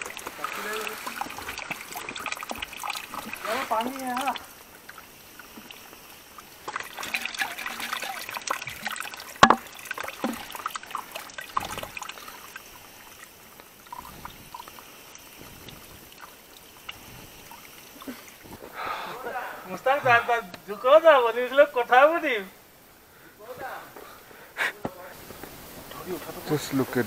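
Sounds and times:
water trickling into bottle: 0.0s - 18.8s.

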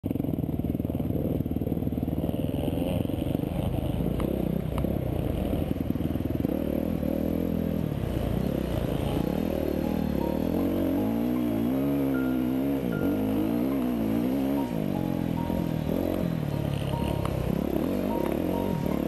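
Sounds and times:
dirt bike engine revving: 0.1s - 19.0s
sharp ticks: 15.6s - 19.0s.

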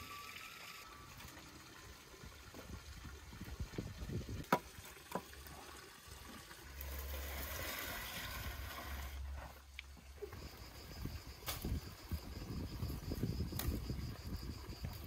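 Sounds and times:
steady hissing noise: 0.0s - 15.0s
firewood logs knocking together: 4.4s - 5.3s.

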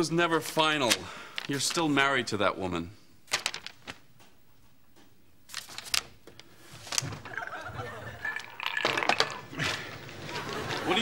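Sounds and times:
studio audience laughter: 7.3s - 8.4s, 10.1s - 11.0s.

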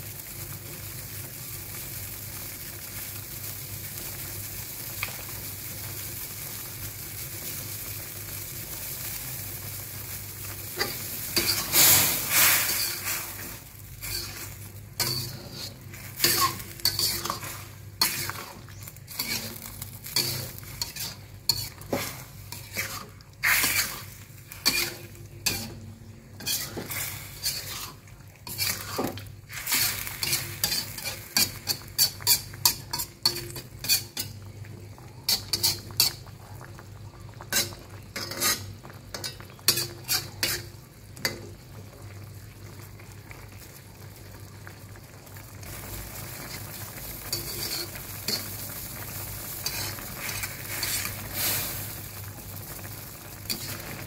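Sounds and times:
food sizzling: 0.0s - 54.0s
sauce bubbling: 0.0s - 54.0s
metal spatula scraping wok: 10.6s - 34.4s, 35.3s - 36.2s, 37.5s - 41.4s, 46.4s - 48.8s, 49.4s - 52.0s, 53.5s - 54.0s.

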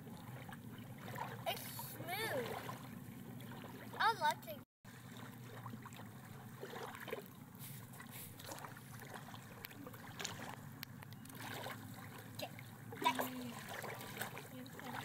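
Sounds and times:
faint water sounds: 0.0s - 15.0s
low steady hum: 0.0s - 15.0s.

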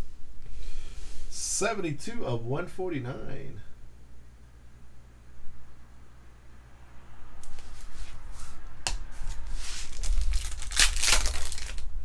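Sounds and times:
plastic wrapper crinkling: 9.2s - 11.9s.

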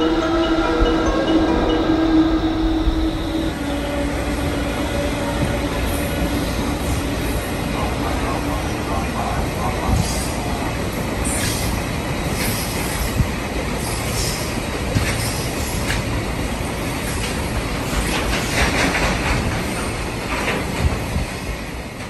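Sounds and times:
freight train rumbling: 0.0s - 22.0s
wheels clicking over rail joints: 17.1s - 21.2s.

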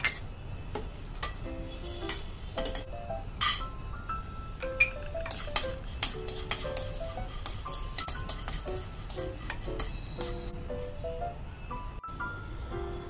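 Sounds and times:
metal spatula scraping a pan: 5.1s - 10.8s.

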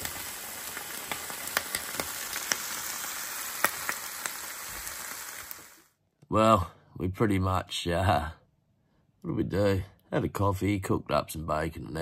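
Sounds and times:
bacon sizzling on hotplate: 0.0s - 5.9s.

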